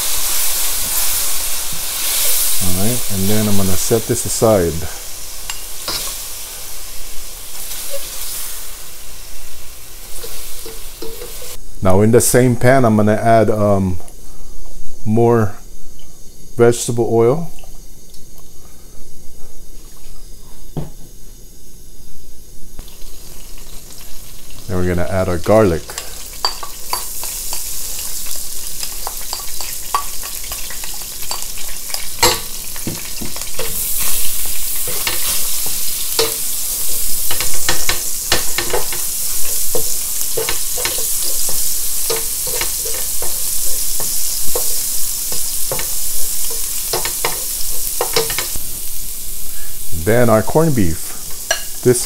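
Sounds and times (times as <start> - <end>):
garlic sizzling in oil: 0.0 - 11.6, 22.8 - 52.0
spatula scraping pan: 10.0 - 11.6, 31.2 - 48.6.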